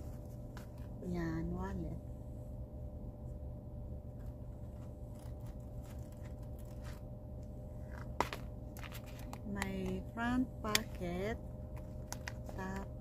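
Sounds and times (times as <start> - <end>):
steady low hum: 0.0 - 13.0
wallet clicks and rustling: 4.1 - 7.1, 7.8 - 10.0, 11.7 - 12.9.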